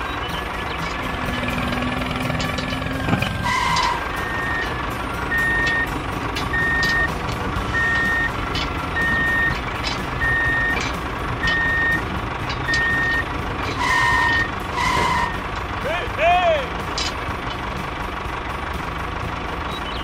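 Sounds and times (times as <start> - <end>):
reversing alarm beeping: 0.0 - 15.5
engine rumble: 0.0 - 20.0.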